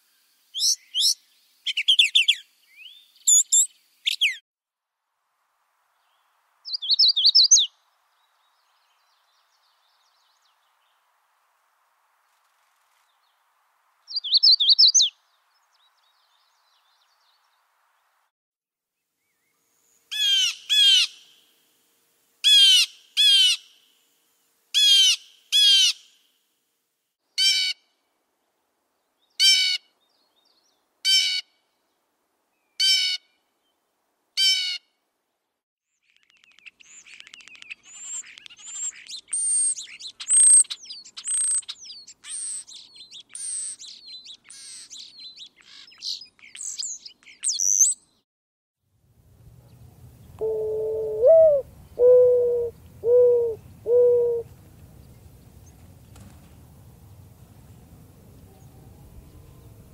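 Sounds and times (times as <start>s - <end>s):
blue jay alarm calls: 20.1s - 21.2s, 22.4s - 23.7s, 24.8s - 26.0s, 50.4s - 54.4s
starling singing whistles and clicks: 36.1s - 43.9s.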